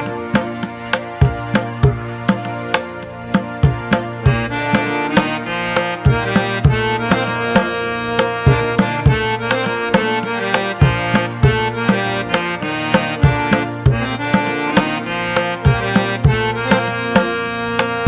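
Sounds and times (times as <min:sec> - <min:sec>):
quick hand-drum beat: 0:00.0 - 0:18.0
sustained melodic instrument: 0:00.0 - 0:18.0.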